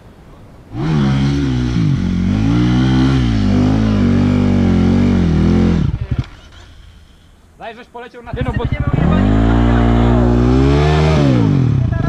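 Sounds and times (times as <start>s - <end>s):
dirt bike engine revving: 0.7s - 6.9s, 8.3s - 12.0s
engine crackles: 8.3s - 12.0s.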